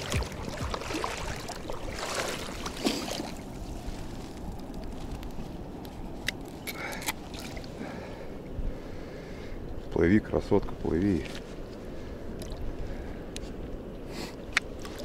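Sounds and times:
river water splashing: 0.0 - 8.4.

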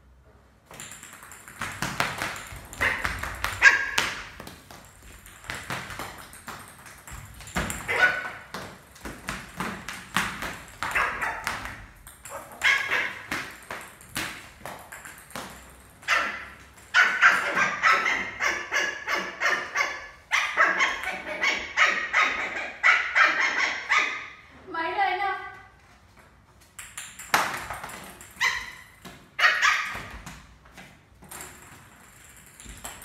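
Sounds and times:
plastic bat and ball tapping: 0.7 - 18.3, 26.6 - 33.0
puppy yapping: 17.0 - 24.4, 29.4 - 30.0.

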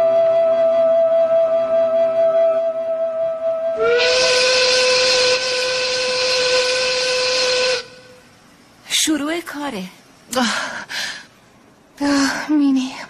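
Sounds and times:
steam whistle blast: 0.0 - 8.3
steam hissing: 3.8 - 8.8.

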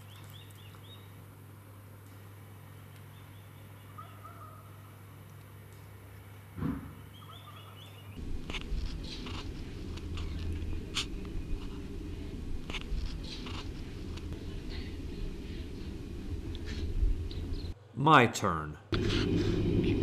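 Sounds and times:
steady low rumble: 8.2 - 17.8, 18.9 - 20.0.

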